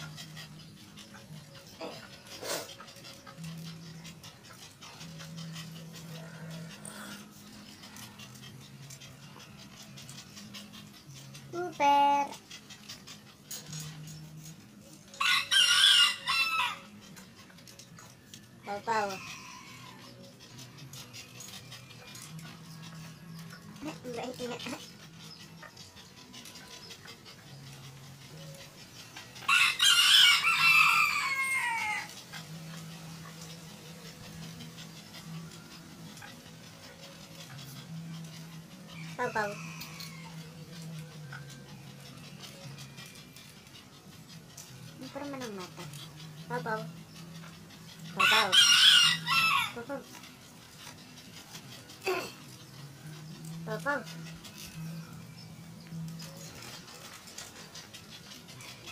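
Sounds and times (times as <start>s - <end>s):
dog panting: 0.0s - 58.9s
paws clicking on cage floor: 0.0s - 58.9s
rooster crowing: 15.2s - 17.0s, 29.5s - 32.1s, 39.1s - 40.6s, 48.2s - 49.8s.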